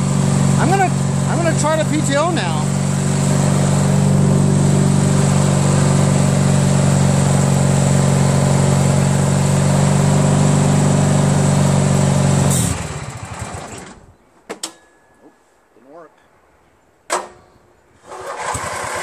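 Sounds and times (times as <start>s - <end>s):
engine stalling and winding down: 0.0s - 14.1s, 18.0s - 19.0s
lawn tractor engine running: 0.0s - 14.1s, 18.0s - 19.0s.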